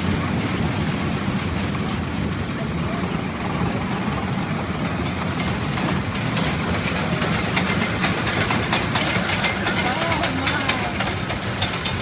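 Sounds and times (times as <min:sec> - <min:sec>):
engine idling: 0:00.0 - 0:12.0
light rattling clatter: 0:00.0 - 0:12.0.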